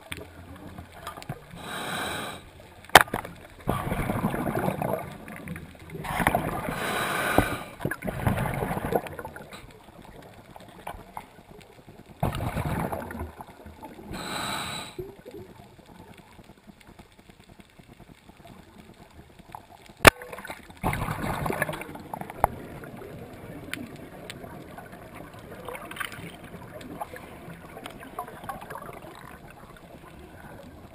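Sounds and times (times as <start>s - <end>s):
underwater bubbles gurgling: 0.0s - 30.9s
sharp crack: 2.8s - 3.9s.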